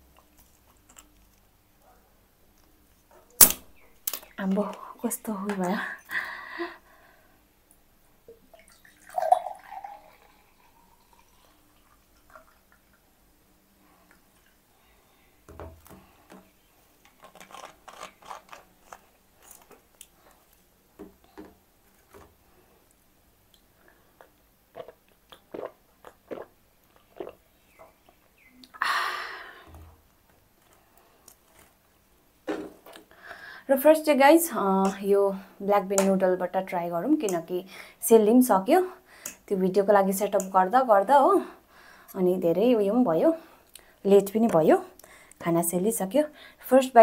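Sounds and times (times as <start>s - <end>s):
soda pouring and fizzing: 8.3s - 13.2s
short breathy burst: 33.1s - 33.7s.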